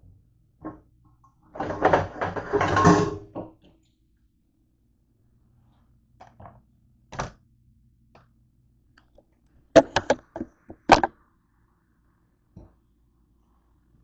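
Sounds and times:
camera handling knocks: 9.8 - 11.1.

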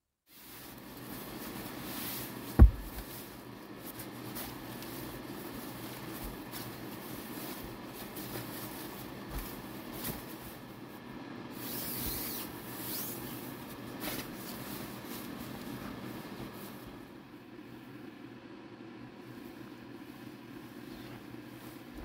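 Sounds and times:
nylon sleeping bag rustling: 0.3 - 17.2
steady low hum: 0.3 - 22.0
soft bumps: 2.5 - 3.2.

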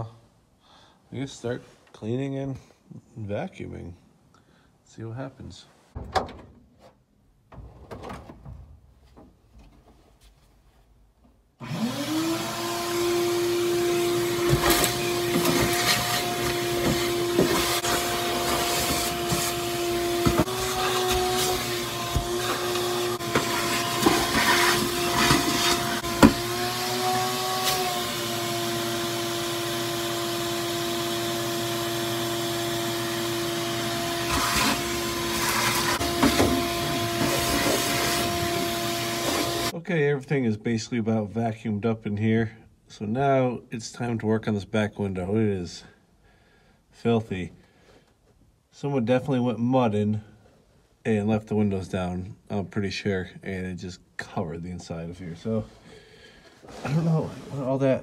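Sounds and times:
vacuum cleaner motor whine: 11.6 - 39.7
vacuum nozzle knocking and rattling: 14.4 - 26.5, 35.4 - 39.6.

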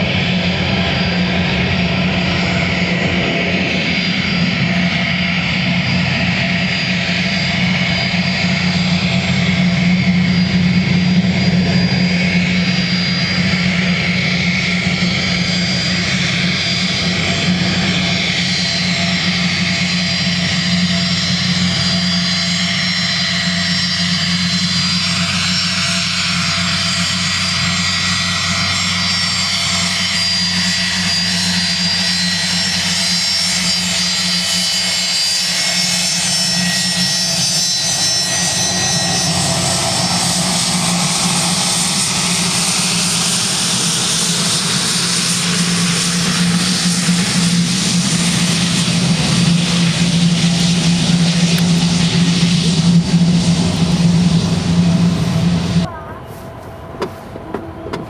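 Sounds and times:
jet engines humming and whining: 0.0 - 58.0
jet exhaust rushing: 0.0 - 58.0.

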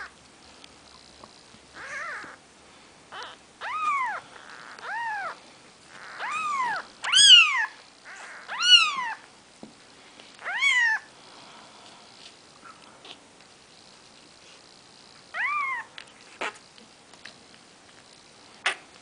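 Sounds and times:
kittens mewing: 1.8 - 2.4, 3.1 - 9.2.

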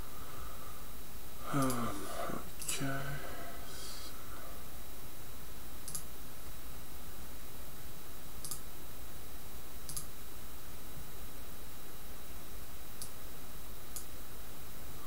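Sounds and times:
low background hum: 0.0 - 15.0
computer mouse clicks: 5.8 - 6.1, 8.4 - 8.6, 9.9 - 10.1.

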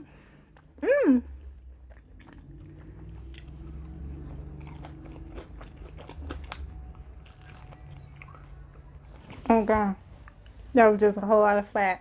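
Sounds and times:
person chewing crunchy food: 0.4 - 9.5.

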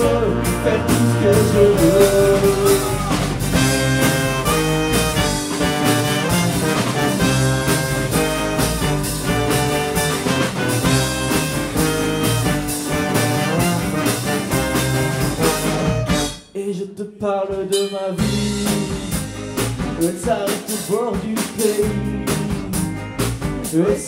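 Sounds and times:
trombone melody: 0.0 - 16.4
drum kit beat: 0.0 - 16.5, 17.4 - 24.0
guitars: 0.0 - 16.5, 18.1 - 24.0
saxophone melody: 0.0 - 16.5.

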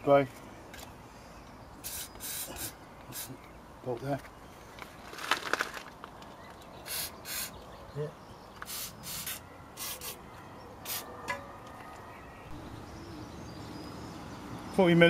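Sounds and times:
aerosol spray hissing in bursts: 1.8 - 3.4, 6.9 - 7.6, 8.7 - 10.2.

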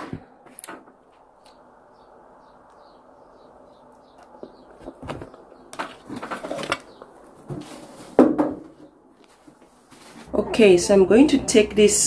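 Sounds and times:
wooden chair scraping: 4.5 - 10.3.

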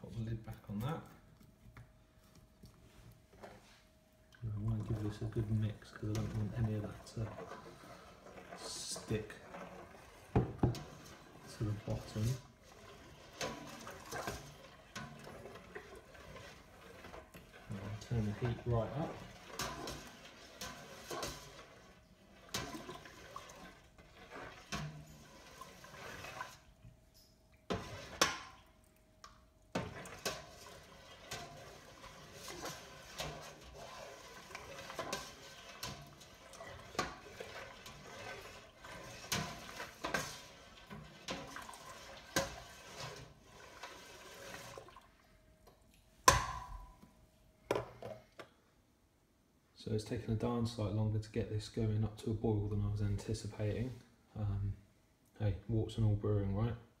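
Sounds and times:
spoon swishing liquid: 4.5 - 29.0, 29.6 - 45.2
spoon scraping metal pot: 4.8 - 28.6, 29.8 - 44.9
loud knock on pot: 46.3 - 46.9.

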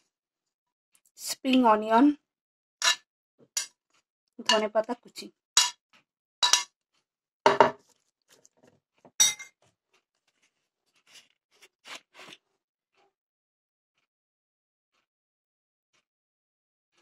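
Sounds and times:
metal spoon clinking on plate: 6.4 - 6.7, 9.2 - 9.5.

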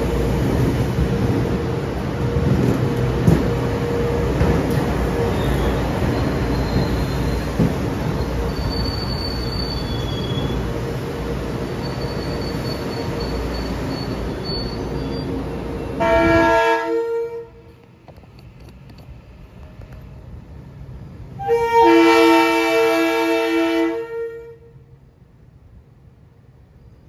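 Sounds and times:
train rolling: 0.0 - 24.2
train horn blasts: 16.0 - 17.8, 21.4 - 24.8.

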